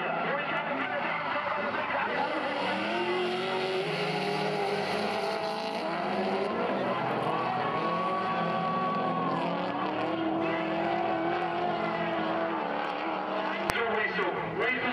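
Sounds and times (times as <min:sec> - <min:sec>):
car engines revving: 0:00.0 - 0:14.9.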